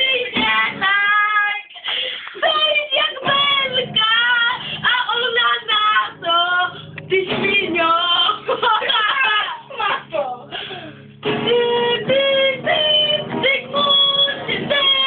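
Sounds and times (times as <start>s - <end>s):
child singing: 0.0s - 1.8s, 2.4s - 8.4s, 11.4s - 15.0s.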